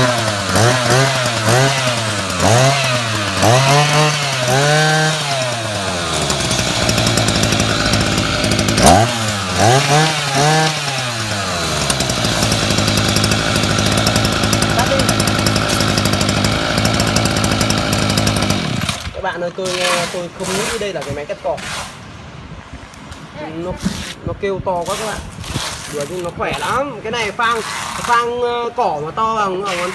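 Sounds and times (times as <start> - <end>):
brush-cutter engine revving: 0.0 - 20.8.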